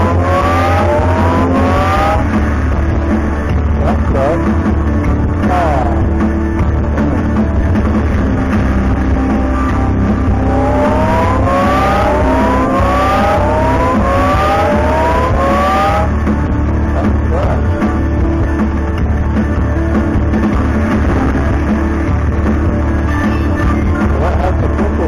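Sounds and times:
rising electronic sweeps: 0.0 - 3.4, 9.3 - 16.2
electronic slot machine music: 0.0 - 25.0.

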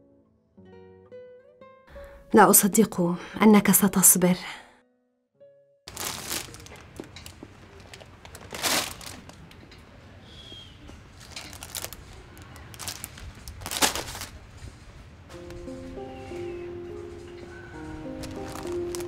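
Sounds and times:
shopping trolley being pushed: 5.9 - 9.4, 11.2 - 14.9
snack packets crinkling: 5.9 - 9.6, 11.2 - 14.4, 17.8 - 19.0.

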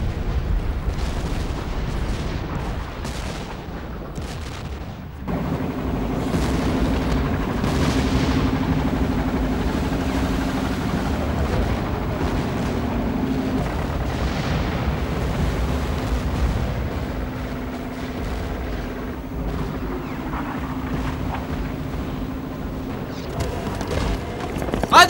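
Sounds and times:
gunfire: 0.0 - 25.0
shell explosions: 0.0 - 25.0
steady low hum: 5.1 - 25.0.

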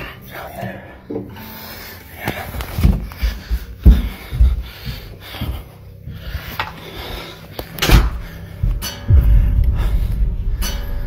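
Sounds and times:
steady low rumble: 2.4 - 11.0
dull knocks and thuds: 2.8 - 5.6.

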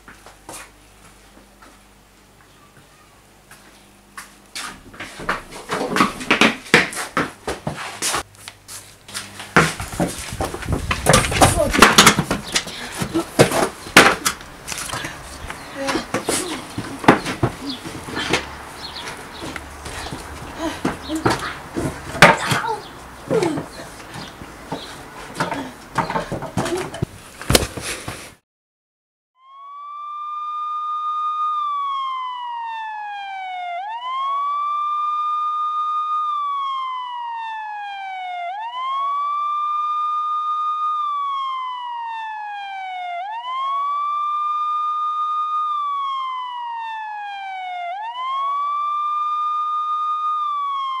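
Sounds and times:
emergency siren wailing: 10.4 - 24.8, 29.4 - 51.0.

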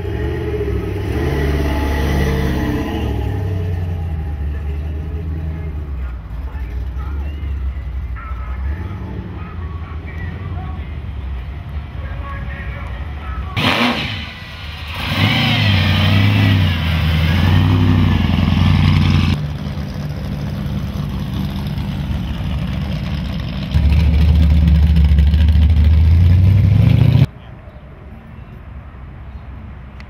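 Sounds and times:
hot rod engines revving: 0.0 - 9.6, 13.6 - 27.3.

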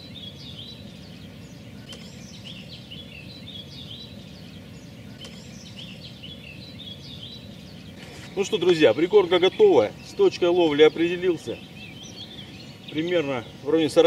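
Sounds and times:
songbirds chirping: 0.0 - 14.0
faint clicks: 1.8 - 2.2, 5.2 - 5.5.

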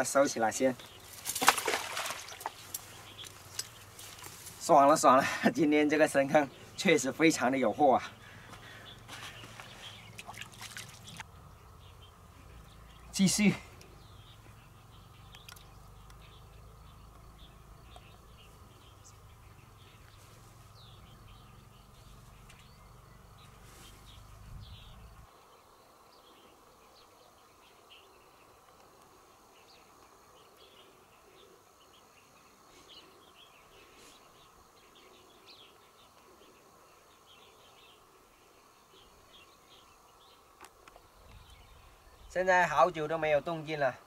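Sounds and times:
small birds chirping: 0.0 - 44.0
low rumble: 14.0 - 25.3.

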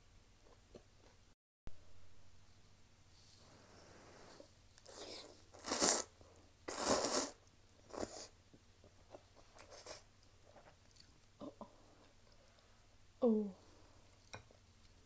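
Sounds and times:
person slurping noodles: 4.8 - 6.1, 6.7 - 8.4.

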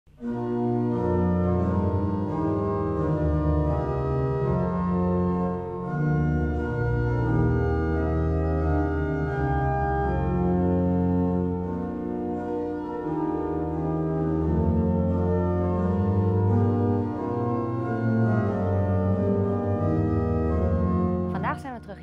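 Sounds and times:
pipe organ playing chords: 0.2 - 22.0.

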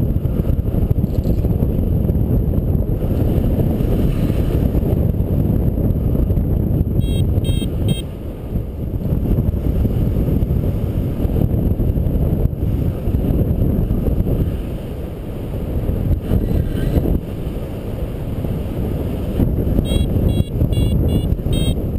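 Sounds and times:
wind buffeting microphone: 0.0 - 21.9
short high beeps: 7.0 - 8.1, 19.8 - 21.8.

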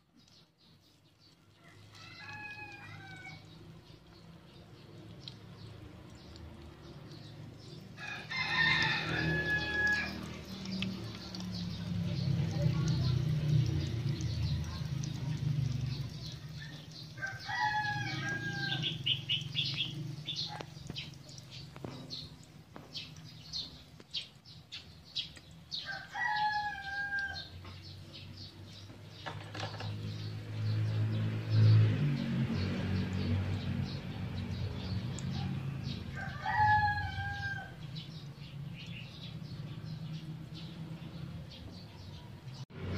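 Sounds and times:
oil frying crackle: 0.0 - 32.0
rooster crowing: 1.6 - 3.5, 8.0 - 10.3, 17.2 - 19.0, 25.8 - 27.5, 35.3 - 37.8.

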